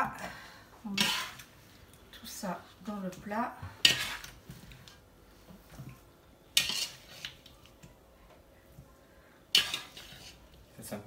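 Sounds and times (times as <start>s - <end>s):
metal skimmer scraping frying pan: 0.9s - 1.5s, 3.8s - 4.4s, 6.6s - 7.4s, 9.5s - 10.5s.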